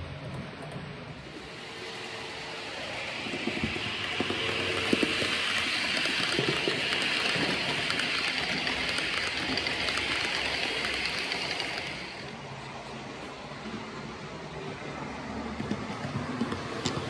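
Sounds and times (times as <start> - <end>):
model train wheels rolling on track: 0.6 - 17.0.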